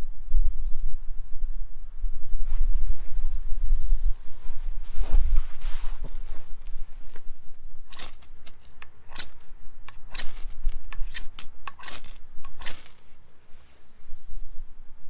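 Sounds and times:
knife scraping ferro rod: 7.9s - 13.0s.

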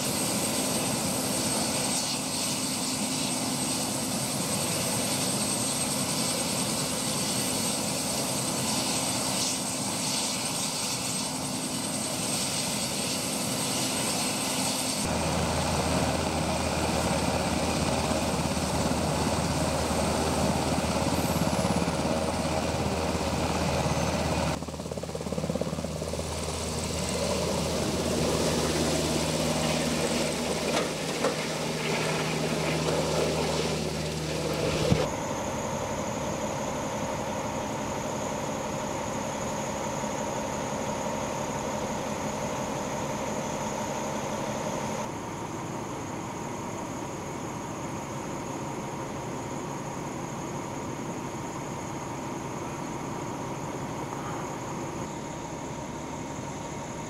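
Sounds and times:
helicopter turbine and rotor: 0.0s - 57.0s.

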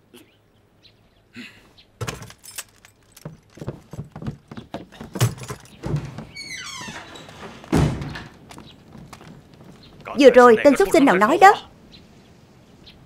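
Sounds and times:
metallic clinking and jangling: 2.0s - 4.3s, 5.0s - 5.9s
soft knocks: 3.2s - 10.1s.

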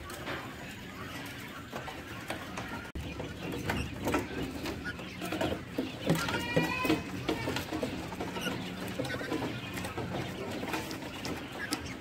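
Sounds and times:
quail pecking and scratching: 0.0s - 12.0s.

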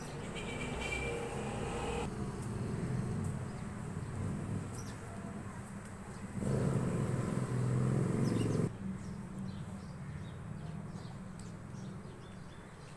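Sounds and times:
engine hum: 0.0s - 5.5s, 6.2s - 8.7s.

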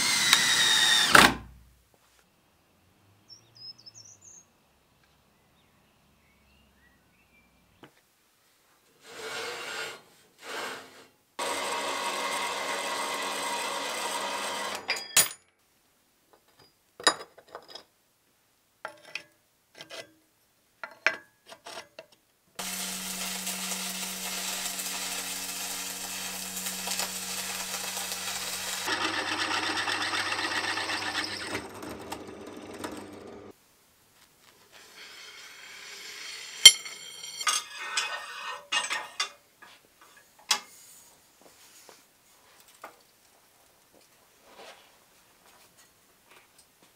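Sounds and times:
band saw cutting metal: 0.0s - 1.2s, 11.4s - 14.9s, 22.6s - 33.5s
drill drilling into steel: 0.0s - 1.4s, 11.4s - 14.8s, 22.6s - 33.5s
drill press motor hum: 11.4s - 14.8s, 22.6s - 33.5s
sharp metallic clank: 36.6s - 37.7s.

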